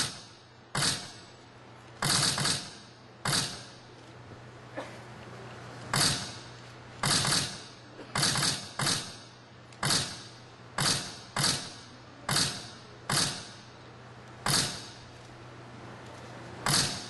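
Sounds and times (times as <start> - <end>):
sharp dry rattling hits: 0.0 - 1.2, 2.0 - 3.9, 5.9 - 13.7, 14.4 - 15.0, 16.6 - 17.0.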